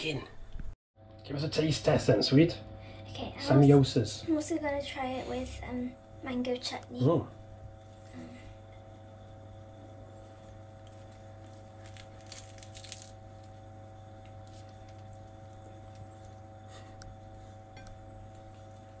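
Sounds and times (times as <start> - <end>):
steady electrical hum: 0.0 - 19.0
crisp pastry crunching: 10.2 - 19.0.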